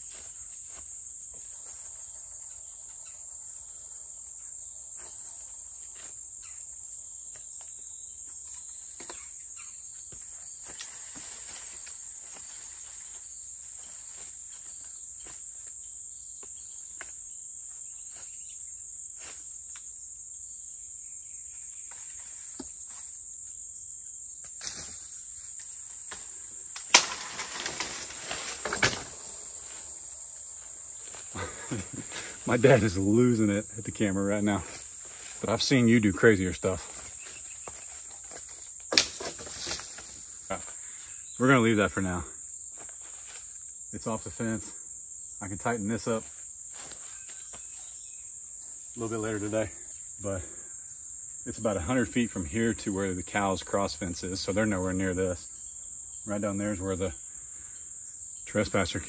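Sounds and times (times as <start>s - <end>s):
insect chorus drone: 0.0s - 59.0s
leaves and twigs crashing: 10.6s - 15.4s, 24.4s - 33.0s, 36.6s - 40.6s
branch cracking: 24.4s - 32.4s, 36.9s - 40.2s
stick tapping branches: 25.6s - 30.2s, 37.6s - 40.1s.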